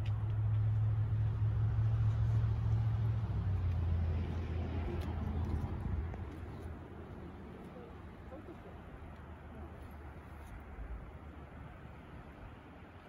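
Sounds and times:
engine humming: 0.0 - 10.2.

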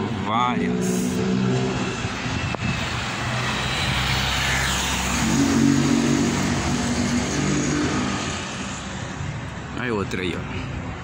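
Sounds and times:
car driving past: 0.6 - 9.2.

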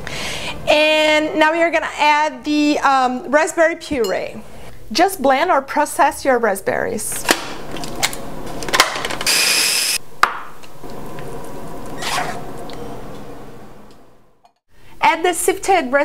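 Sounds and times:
food processor whirring: 9.2 - 10.0.

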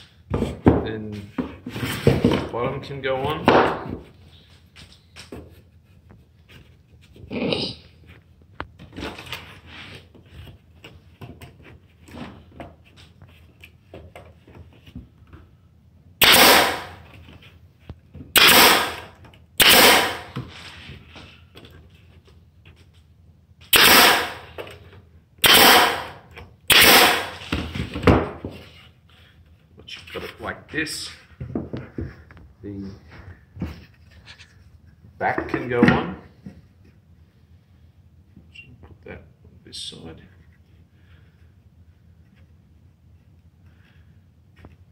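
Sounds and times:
wooden boards knocking: 3.4 - 4.1
staple gun firing: 16.2 - 17.0, 18.4 - 20.3, 23.8 - 24.4, 25.4 - 27.4.

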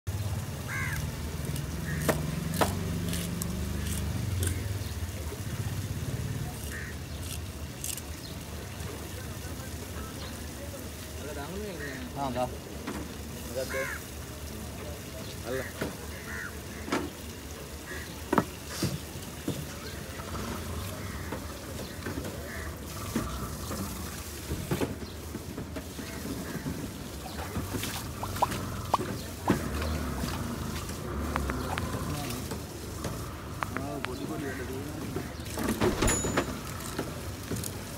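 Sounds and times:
wet fish handling: 27.3 - 34.1
low engine hum: 27.3 - 34.6.

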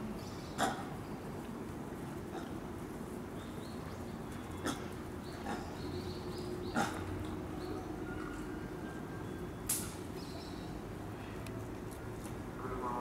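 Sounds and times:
steady background hum: 0.0 - 13.0
monkeys calling: 4.5 - 8.7.

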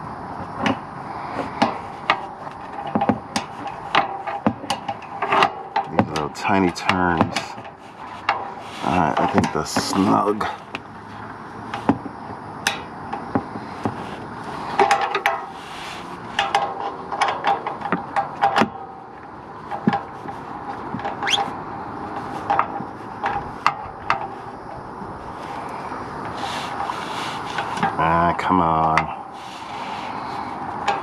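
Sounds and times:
hand tools clicking on metal: 1.6 - 10.8.

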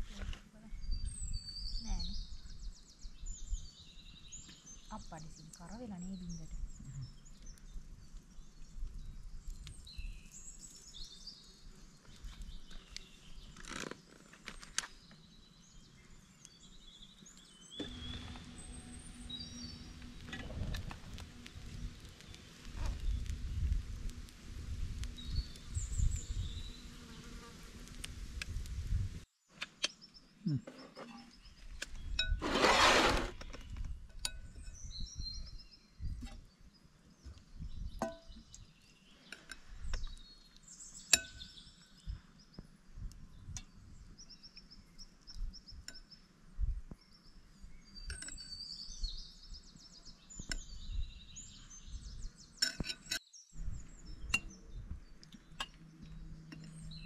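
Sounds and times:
birds chirping: 0.2 - 28.6, 46.9 - 57.0.

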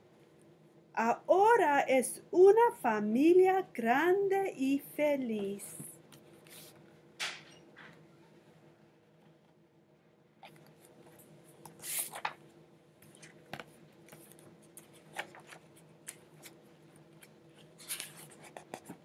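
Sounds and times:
book pages rustling: 6.1 - 6.9, 10.4 - 19.0.

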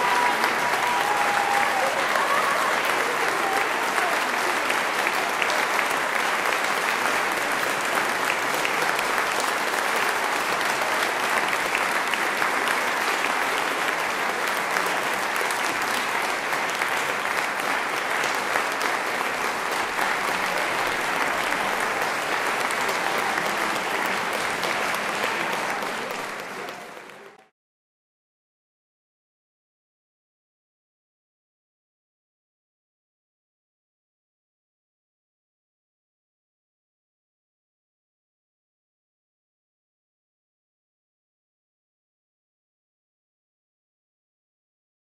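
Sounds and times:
audience applauding: 0.0 - 27.5.

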